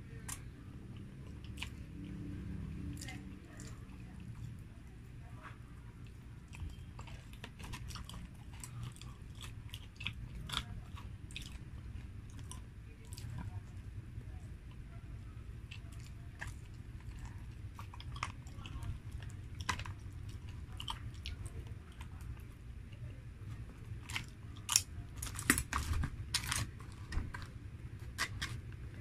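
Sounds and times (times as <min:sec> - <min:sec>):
low steady hum: 0:00.0 - 0:29.0
person chewing: 0:00.1 - 0:02.2, 0:06.1 - 0:13.5, 0:15.6 - 0:22.5, 0:23.5 - 0:29.0.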